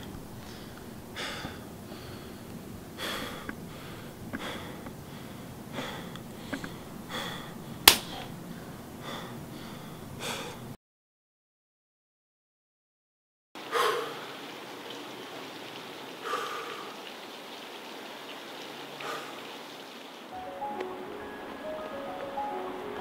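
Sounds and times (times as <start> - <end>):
man breathing heavily: 0.2 - 10.8, 13.7 - 14.4, 16.2 - 17.1, 19.0 - 19.5
sharp click: 7.9 - 8.2.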